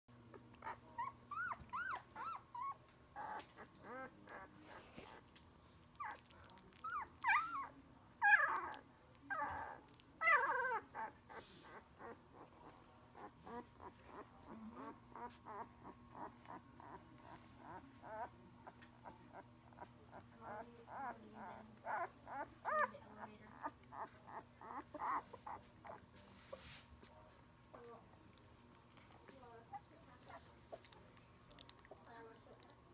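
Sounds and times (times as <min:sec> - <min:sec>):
puppies whimpering and squealing: 0:00.4 - 0:05.2, 0:06.0 - 0:26.6.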